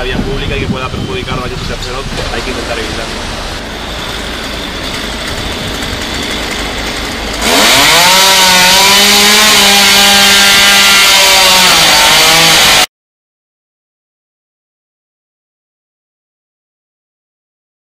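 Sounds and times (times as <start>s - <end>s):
street background noise: 0.0s - 8.0s
chainsaw running at full throttle: 2.4s - 12.9s.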